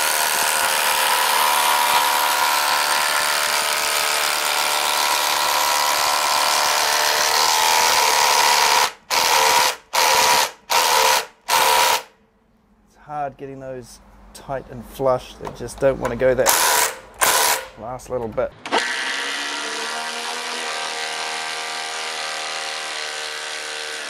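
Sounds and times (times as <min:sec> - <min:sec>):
impact driver hammering: 0:00.0 - 0:12.1, 0:16.5 - 0:17.8.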